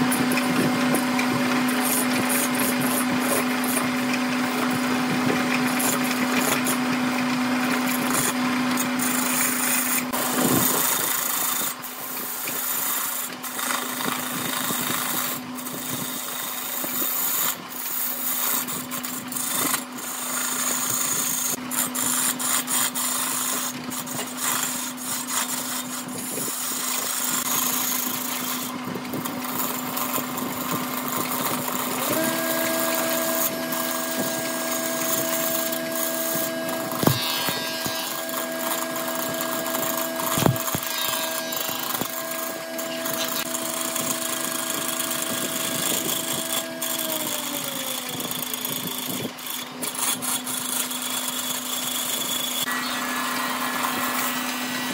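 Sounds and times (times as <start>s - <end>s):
wood lathe humming: 0.0s - 54.9s
gouge cutting hiss: 31.8s - 47.0s.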